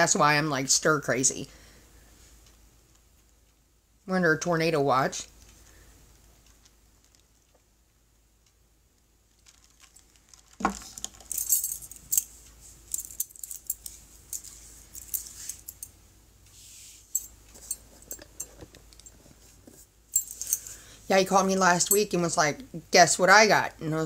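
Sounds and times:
soft hiss: 0:00.0 - 0:24.0
small hard objects clinking: 0:09.4 - 0:12.3.

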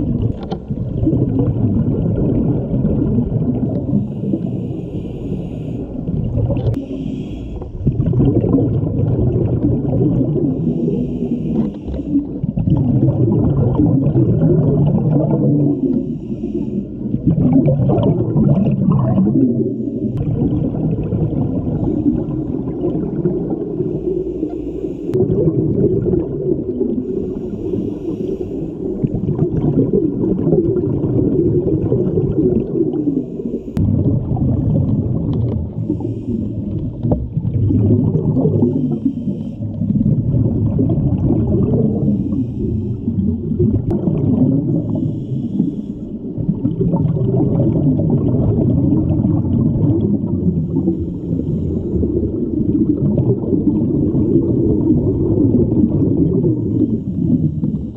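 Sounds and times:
exhaled bubbles gurgling: 0:00.0 - 0:57.9
regulator inhale hiss: 0:03.8 - 0:07.9, 0:10.5 - 0:12.4, 0:15.6 - 0:17.2, 0:19.6 - 0:20.3, 0:23.8 - 0:25.2, 0:27.0 - 0:29.1, 0:32.9 - 0:33.8, 0:35.7 - 0:37.0, 0:38.6 - 0:39.9, 0:41.9 - 0:43.4, 0:44.8 - 0:46.4, 0:50.5 - 0:52.2, 0:56.6 - 0:57.9.

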